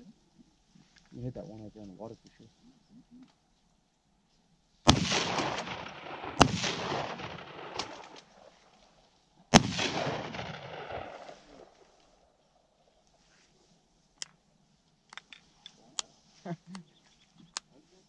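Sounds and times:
shotgun blasts with echo: 0:04.9 - 0:08.5, 0:09.5 - 0:12.0.

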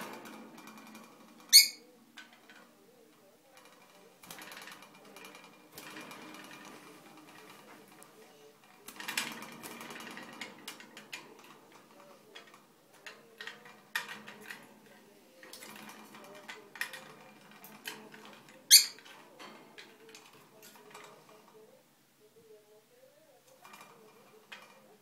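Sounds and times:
parrot chattering: 0:01.5 - 0:01.8.

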